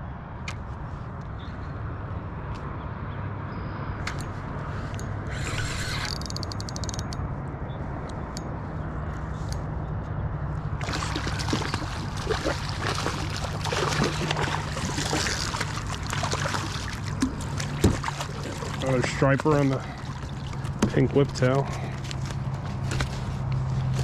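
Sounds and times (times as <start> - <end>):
water splashing against kayak: 10.8 - 22.1.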